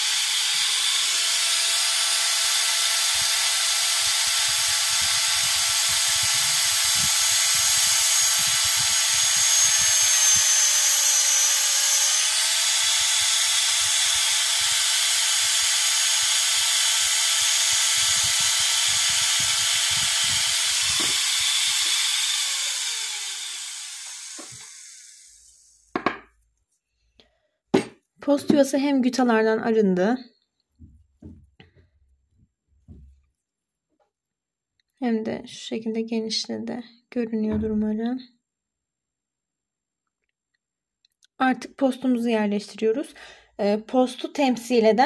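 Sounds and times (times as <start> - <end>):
dental drill whining: 0.0 - 26.0.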